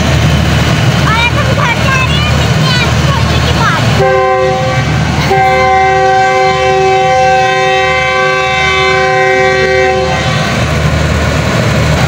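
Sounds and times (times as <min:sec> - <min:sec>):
train horn blast: 0:03.9 - 0:10.7.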